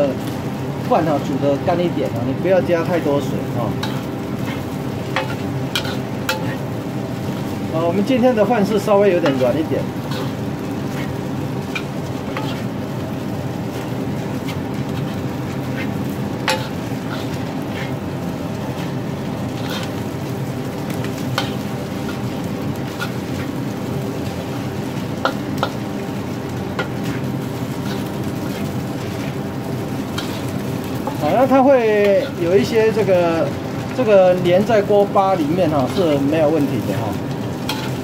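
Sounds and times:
rice sizzling in a wok: 0:00.0 - 0:38.0
steady hum: 0:00.0 - 0:38.0
metal spatula scraping wok: 0:03.6 - 0:06.7, 0:08.4 - 0:13.0, 0:13.7 - 0:18.0, 0:18.6 - 0:20.2, 0:21.1 - 0:25.9, 0:26.6 - 0:32.8, 0:34.8 - 0:38.0.

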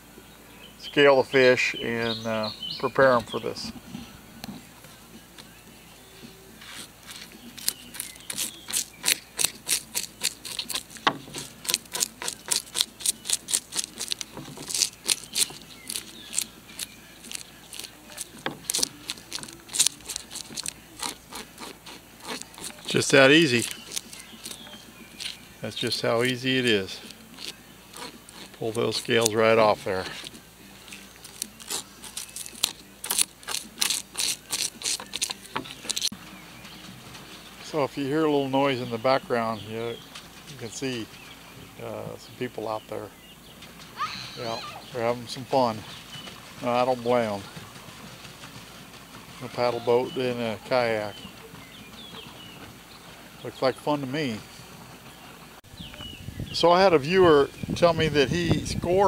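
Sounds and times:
spoon scraping fish scales: 0:06.5 - 0:36.2.

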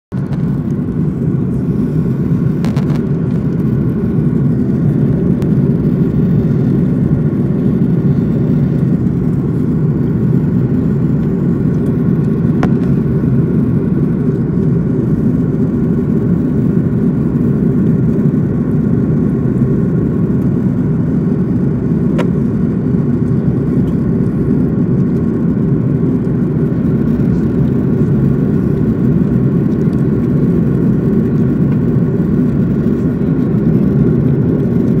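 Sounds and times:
aircraft cabin engine rumble: 0:00.1 - 0:35.0.

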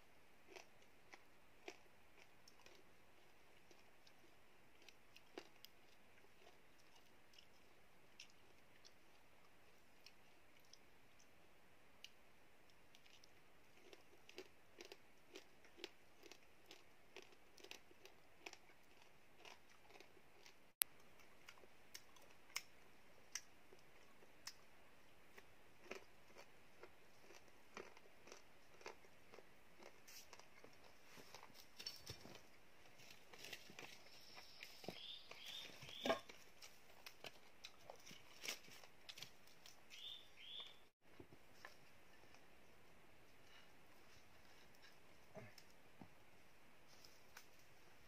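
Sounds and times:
person chewing and crunching: 0:00.4 - 0:09.3, 0:12.0 - 0:24.7, 0:25.3 - 0:39.8.

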